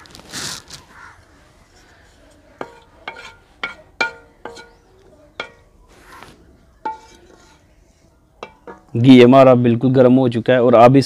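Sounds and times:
spoon knocking on metal pan: 0:02.6 - 0:05.7, 0:06.8 - 0:07.6, 0:08.4 - 0:09.0.

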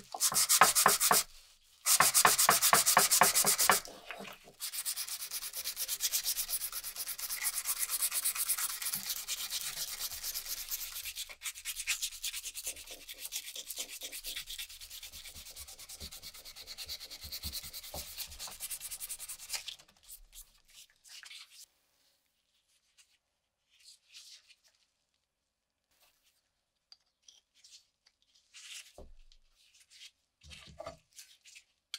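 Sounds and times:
sandpaper rasping on wood: 0:00.0 - 0:19.6.

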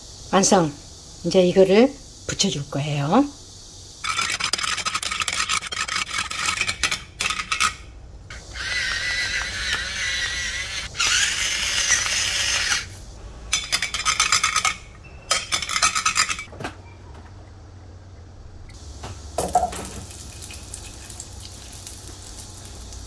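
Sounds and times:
pepper mill grinding: 0:04.0 - 0:16.5, 0:19.4 - 0:23.0
metal spoon beating eggs in bowl: 0:04.1 - 0:07.8, 0:13.5 - 0:16.5.

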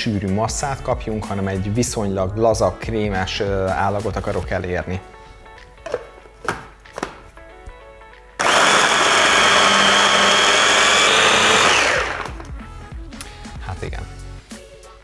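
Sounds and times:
immersion blender running: 0:08.4 - 0:12.5.

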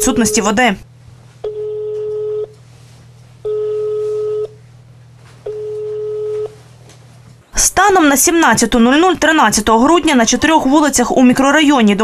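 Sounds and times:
steady low hum: 0:00.0 - 0:10.9
phone beeps: 0:03.4 - 0:04.6, 0:05.5 - 0:06.6.

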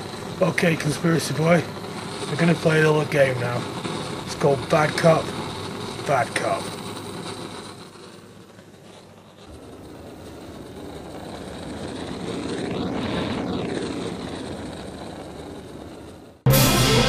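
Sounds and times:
aircraft flying over: 0:09.6 - 0:17.0.

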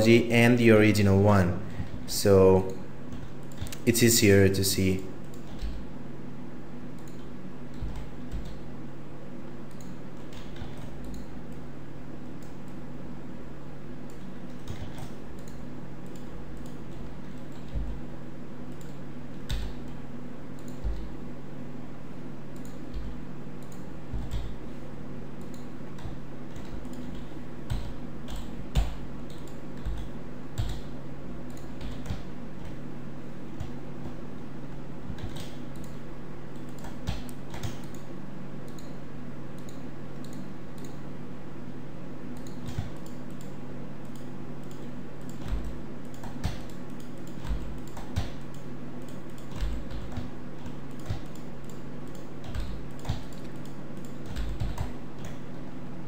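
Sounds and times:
low electrical hum: 0:00.0 - 0:56.0
keyboard and mouse clicks: 0:02.7 - 0:03.9, 0:05.2 - 0:05.8, 0:07.0 - 0:08.6, 0:09.7 - 0:11.6, 0:14.1 - 0:18.0, 0:18.7 - 0:20.0, 0:20.6 - 0:21.1, 0:22.5 - 0:24.6, 0:25.4 - 0:30.9, 0:31.5 - 0:32.8, 0:35.1 - 0:39.0, 0:39.6 - 0:41.0, 0:42.3 - 0:55.6.

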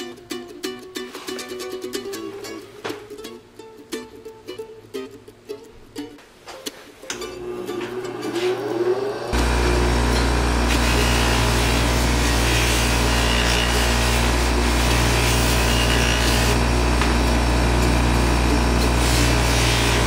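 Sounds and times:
bench grinder motor humming: 0:07.4 - 0:20.0
metal rubbing on grinding wheel: 0:10.0 - 0:16.6, 0:18.8 - 0:20.0.

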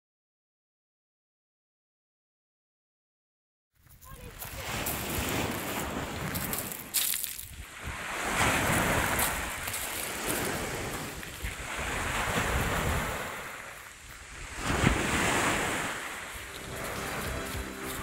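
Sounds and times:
waves washing on shingle beach: 0:04.0 - 0:18.0
wind buffeting microphone: 0:04.1 - 0:18.0.

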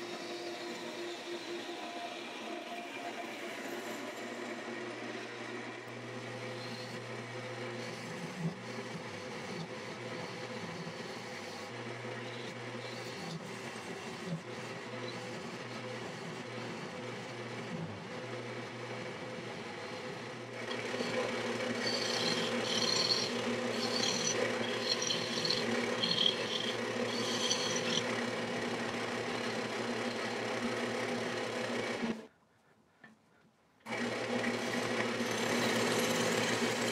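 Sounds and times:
turning tool cutting wood: 0:00.0 - 0:32.3, 0:33.8 - 0:36.9
wood lathe motor running: 0:00.0 - 0:32.3, 0:33.9 - 0:36.9
high scraping: 0:21.7 - 0:28.0.

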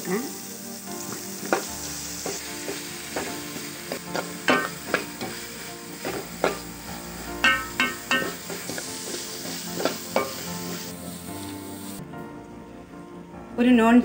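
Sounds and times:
onions sizzling in oil: 0:00.0 - 0:12.0
spatula scraping and knocking pan: 0:01.4 - 0:06.8, 0:07.4 - 0:10.9.

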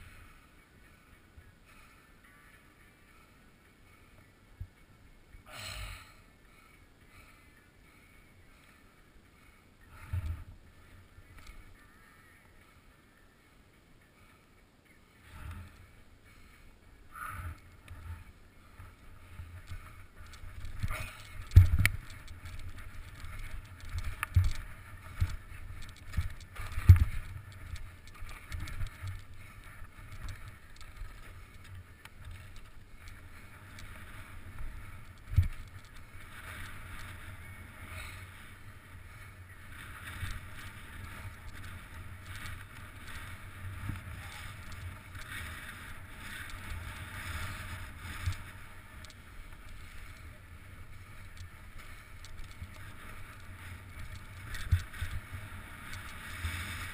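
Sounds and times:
skis sliding on snow: 0:17.2 - 0:56.9.

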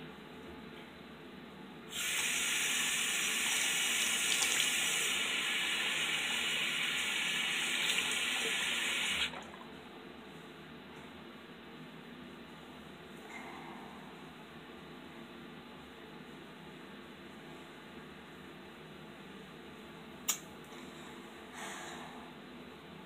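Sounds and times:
sink tap running: 0:02.0 - 0:09.3.

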